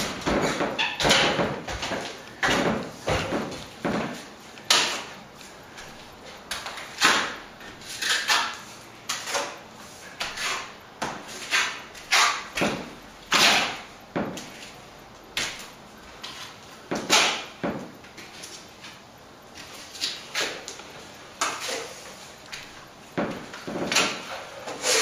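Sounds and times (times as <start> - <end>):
trowel scraping plaster: 6.9 - 9.6, 10.2 - 12.6, 23.9 - 25.0.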